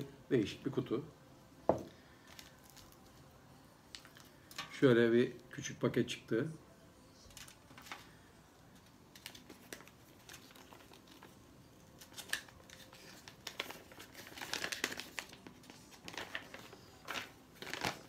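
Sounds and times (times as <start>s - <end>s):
packet crinkling: 2.2s - 3.2s, 9.1s - 18.0s
paper leaflet unfolding: 12.0s - 18.0s.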